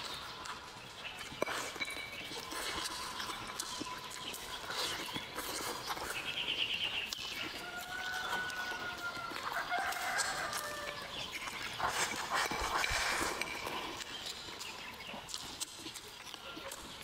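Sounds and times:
person chewing food: 0.0s - 17.0s
rooster crowing: 7.6s - 11.1s.

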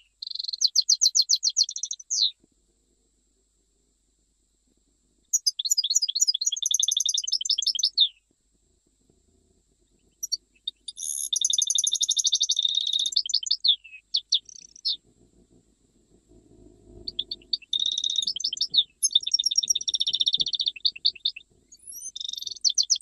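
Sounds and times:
finch twittering and trilling: 5.3s - 8.1s, 10.0s - 15.0s, 17.0s - 23.0s.

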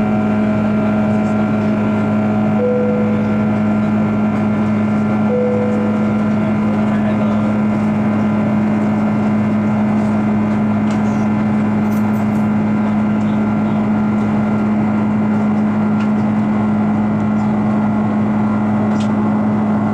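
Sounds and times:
jet engine roar in cabin: 0.0s - 19.9s
low drone: 0.0s - 19.9s.

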